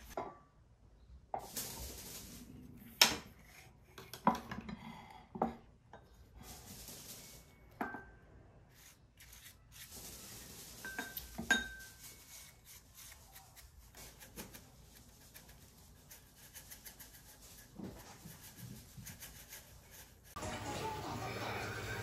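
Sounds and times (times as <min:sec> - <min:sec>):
brush rubbing over food: 0:06.2 - 0:07.7, 0:08.7 - 0:21.0
glass clinks: 0:10.9 - 0:11.8.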